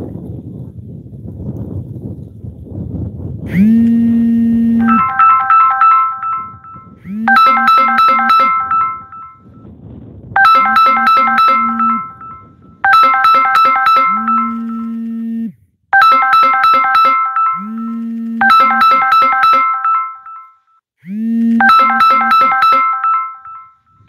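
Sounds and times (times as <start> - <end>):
electronic keyboard phrase: 3.5 - 9.5, 10.4 - 20.4, 21.5 - 23.7.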